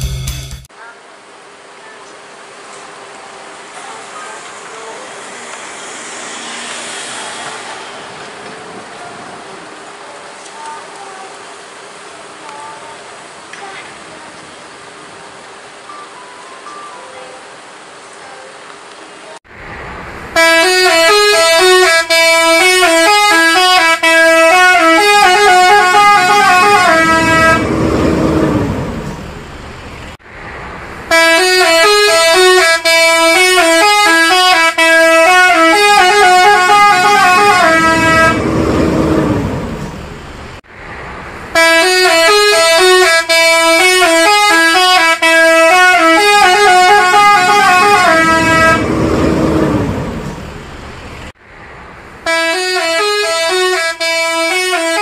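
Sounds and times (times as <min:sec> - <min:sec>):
bus engine pulling away: 0:01.3 - 0:16.8, 0:17.4 - 0:42.8, 0:45.4 - 0:52.3
multi-tone bus air horn tune: 0:20.3 - 0:28.9, 0:31.1 - 0:39.7, 0:41.5 - 0:50.2, 0:52.2 - 0:55.0.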